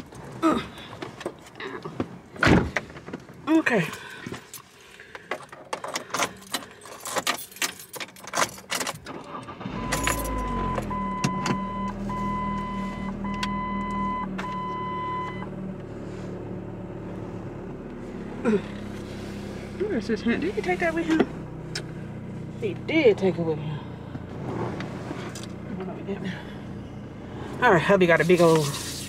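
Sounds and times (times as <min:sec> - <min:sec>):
car engine starting and idling: 0:00.0 - 0:29.0
car warning chime beeping: 0:09.6 - 0:15.6.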